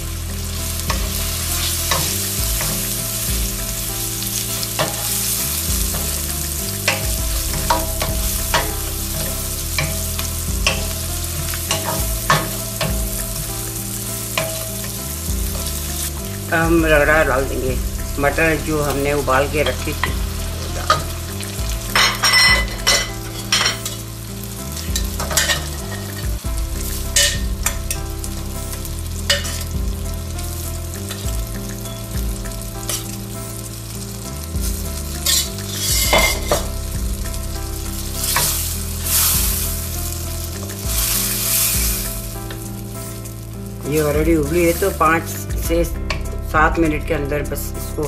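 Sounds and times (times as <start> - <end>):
food sizzling in a pan: 0.0 - 48.0
wooden spoon scraping a pan: 35.2 - 36.8.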